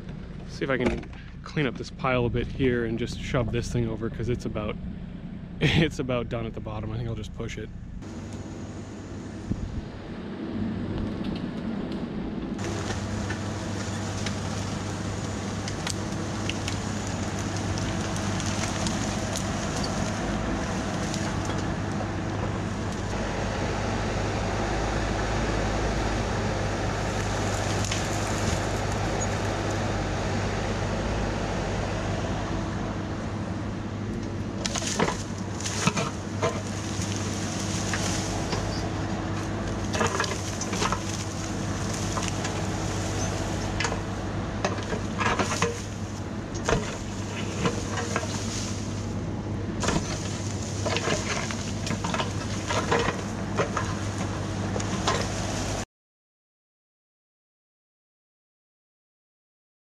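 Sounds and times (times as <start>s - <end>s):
mini excavator diesel engine: 0.0s - 55.8s
sharp cracks and knocks: 12.6s - 21.7s, 34.6s - 38.7s, 39.4s - 42.8s, 46.6s - 49.0s.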